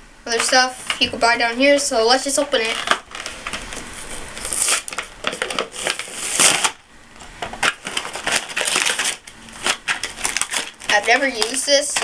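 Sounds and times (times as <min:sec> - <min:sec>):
torn cardboard crackling: 0:00.3 - 0:12.0
cardboard box being torn open: 0:04.4 - 0:06.8, 0:07.6 - 0:10.9.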